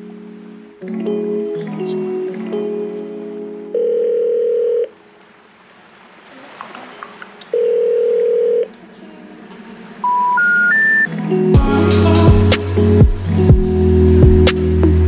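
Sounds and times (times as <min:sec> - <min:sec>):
long telephone beeps: 0:03.8 - 0:04.9, 0:07.6 - 0:08.6, 0:10.0 - 0:11.1
rising three-note telephone tones: 0:10.0 - 0:11.1.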